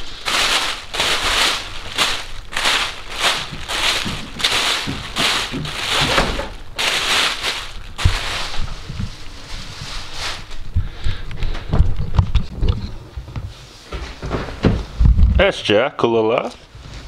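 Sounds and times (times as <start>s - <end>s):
plastic bag crinkling: 0.0s - 10.8s.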